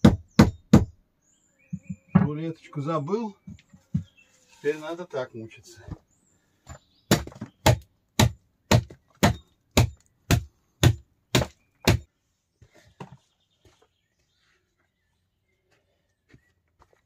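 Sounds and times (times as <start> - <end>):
axe chopping wood: 7.1 - 12.1.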